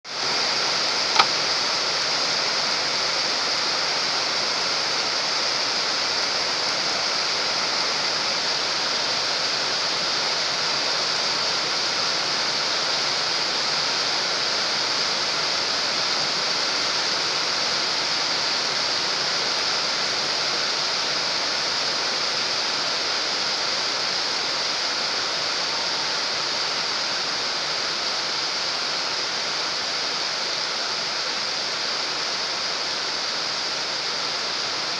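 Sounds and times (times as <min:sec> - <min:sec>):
rain falling on a pond: 0:00.1 - 0:34.9
brief click: 0:01.2 - 0:01.4.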